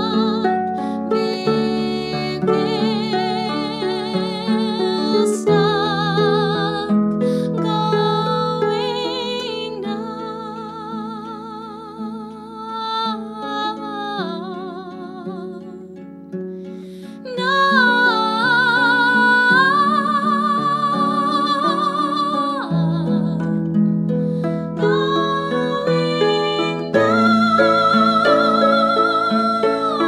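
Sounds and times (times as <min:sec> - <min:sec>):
harp playing: 0:00.0 - 0:30.0
held wavering melody lines: 0:17.2 - 0:30.0.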